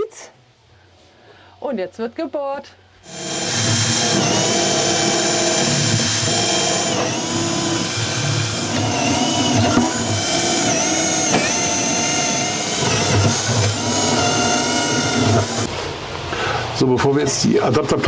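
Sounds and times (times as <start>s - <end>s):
electric drill whining: 3.0s - 15.7s.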